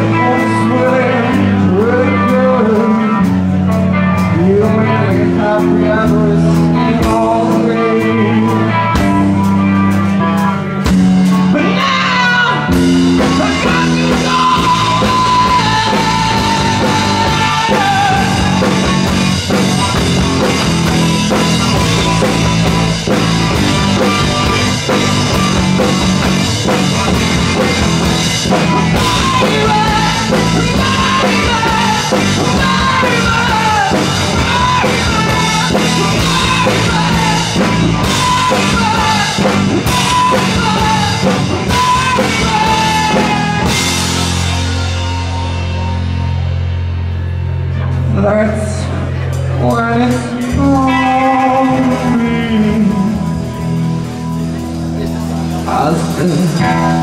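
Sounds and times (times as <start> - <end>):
live rock band playing: 0.0 - 57.0
singer wailing: 11.5 - 19.3, 27.5 - 44.8.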